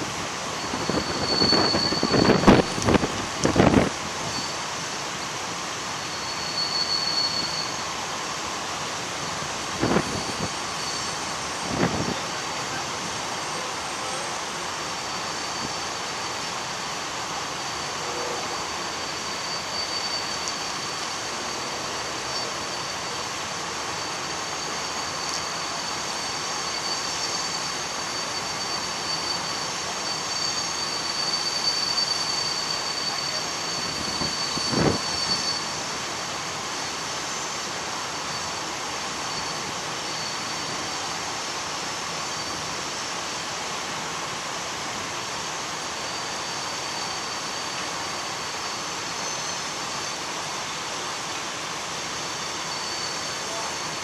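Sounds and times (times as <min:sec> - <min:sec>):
freight train rolling past: 0:00.0 - 0:54.0
high-pitched wheel squeal: 0:00.4 - 0:03.1, 0:03.7 - 0:04.8, 0:06.0 - 0:08.0, 0:09.8 - 0:16.5, 0:17.6 - 0:36.0, 0:37.2 - 0:41.3, 0:45.9 - 0:50.2, 0:52.2 - 0:54.0.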